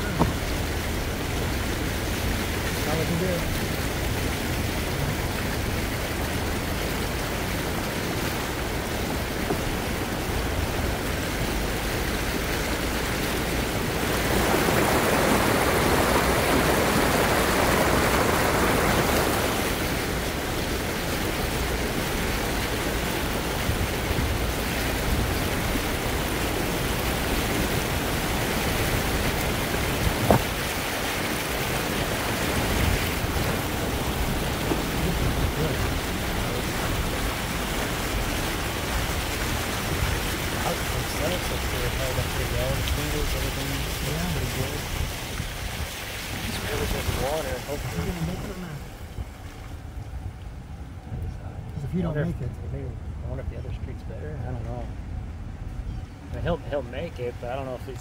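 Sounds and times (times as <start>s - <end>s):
water rushing: 0.0s - 58.0s
wind on microphone: 12.3s - 40.6s.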